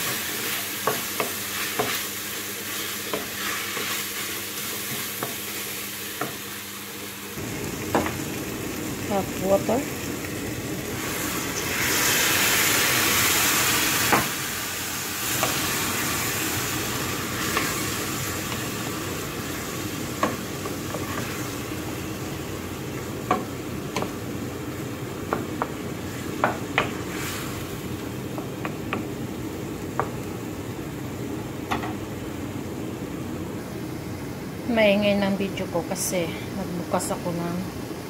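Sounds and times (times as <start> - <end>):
water hissing in hot pan: 0.0 - 28.2.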